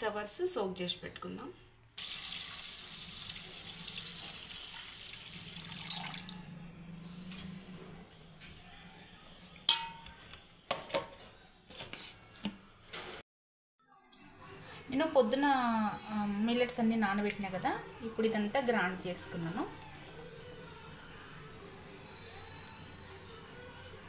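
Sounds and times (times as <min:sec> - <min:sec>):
water pouring into bowl: 0:02.0 - 0:06.6.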